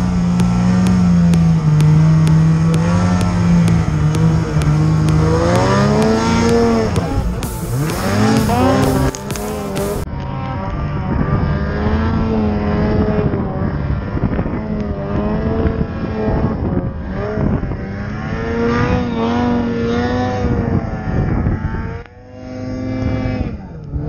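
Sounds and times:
snowmobile engine revving: 0:00.0 - 0:10.0.

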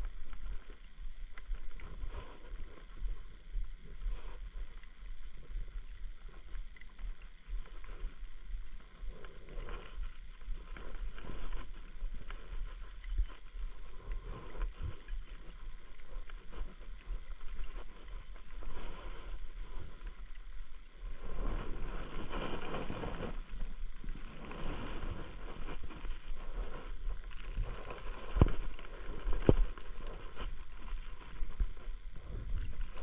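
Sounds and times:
wind on microphone: 0:00.0 - 0:06.8, 0:07.4 - 0:33.0.

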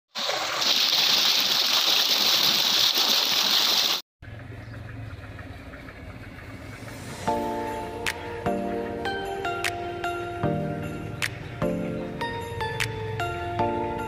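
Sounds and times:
water gushing into a tank: 0:00.1 - 0:04.0.

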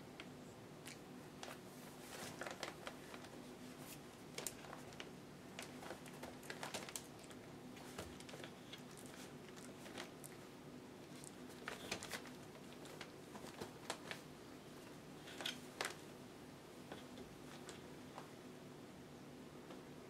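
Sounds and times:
puppy paws pattering on newspaper: 0:01.3 - 0:16.1.

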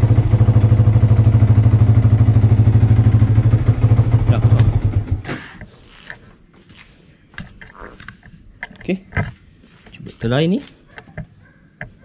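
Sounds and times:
motorcycle engine running: 0:00.0 - 0:05.3.

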